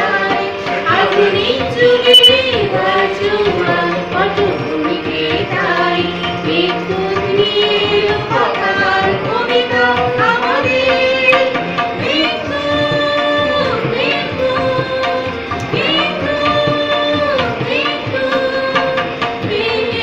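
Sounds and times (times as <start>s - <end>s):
group singing: 0.0s - 20.0s
harmonium: 0.0s - 20.0s
tabla: 0.0s - 20.0s.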